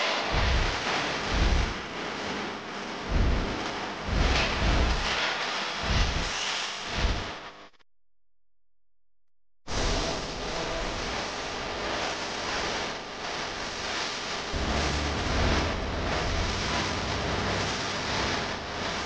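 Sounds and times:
low rumble: 0.4s - 1.8s, 3.1s - 3.5s, 4.1s - 5.1s, 14.5s - 19.0s.

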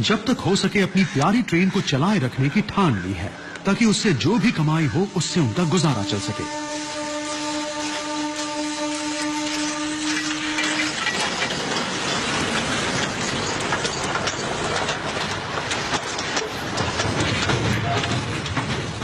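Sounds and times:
train rumble: 0.0s - 19.0s
train wheels clattering on rails: 7.8s - 19.0s.

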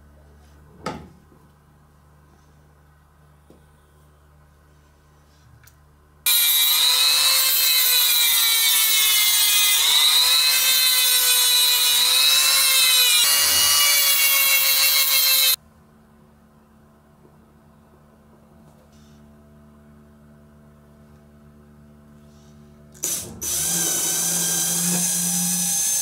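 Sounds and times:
rotary tool grinding wood: 6.3s - 15.6s, 23.0s - 26.0s.

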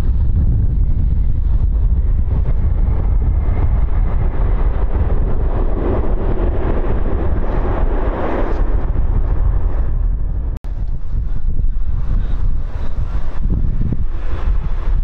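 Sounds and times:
jet engines roaring: 0.0s - 15.0s
wind buffeting microphone: 0.0s - 15.0s.

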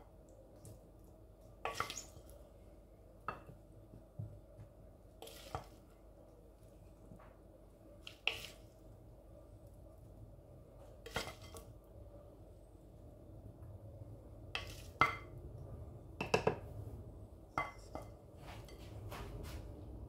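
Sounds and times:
wooden spoon scraping ceramic dish: 14.6s - 15.2s.

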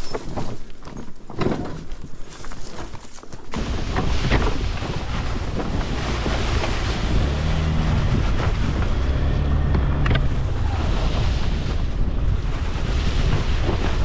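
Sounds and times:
wind buffeting microphone: 3.6s - 14.0s
scooter engine hum: 5.6s - 11.2s.

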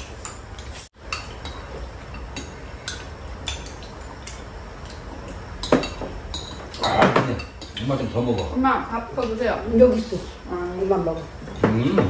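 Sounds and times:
chopsticks clinking on bowls: 0.2s - 9.4s.

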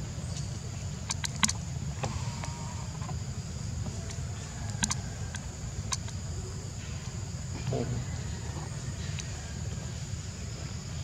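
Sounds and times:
sharp clicks: 4.8s - 6.2s.

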